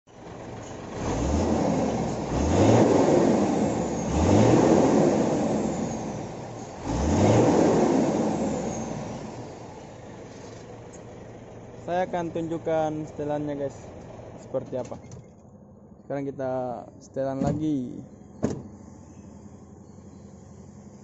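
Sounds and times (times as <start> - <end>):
diesel engine revving: 0.2 - 14.9.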